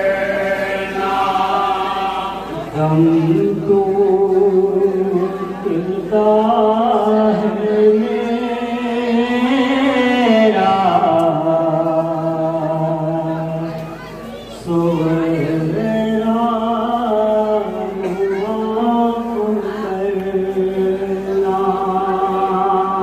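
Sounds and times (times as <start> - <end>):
man chanting a lament: 14.6 - 23.0.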